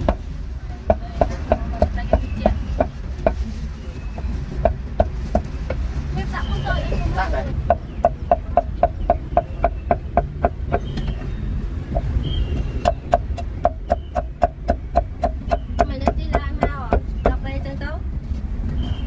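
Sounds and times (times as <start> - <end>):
cleaver chopping meat on wood: 0.0 - 3.4, 7.6 - 11.2, 11.9 - 17.4.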